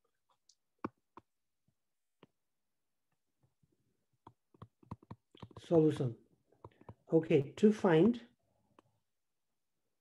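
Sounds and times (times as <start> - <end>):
stylus tapping on tablet: 0.8 - 1.4, 4.1 - 7.1.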